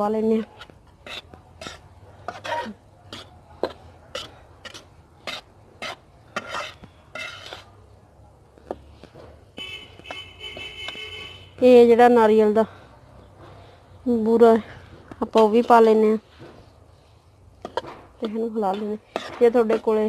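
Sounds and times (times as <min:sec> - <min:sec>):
metal spatula scraping wok: 0:00.0 - 0:07.9, 0:15.2 - 0:20.0.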